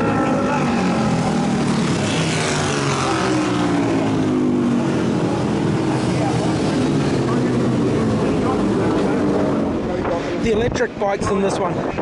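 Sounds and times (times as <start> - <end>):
racing motorcycles passing: 0.0 - 12.0.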